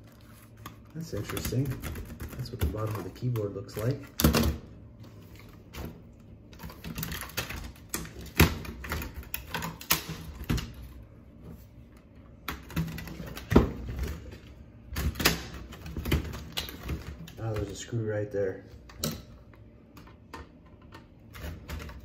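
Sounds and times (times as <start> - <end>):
plastic parts clicking and knocking: 0.6 - 4.6, 6.5 - 10.9, 12.4 - 17.8.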